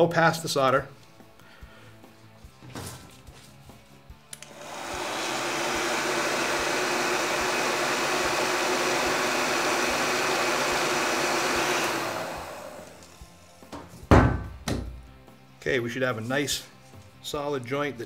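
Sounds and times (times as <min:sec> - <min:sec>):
heat gun blowing air: 0:04.4 - 0:13.4.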